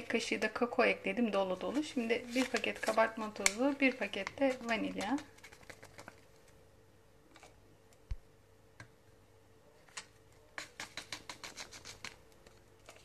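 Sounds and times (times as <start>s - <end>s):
paper sachet crinkling: 1.6s - 6.6s, 9.9s - 13.0s.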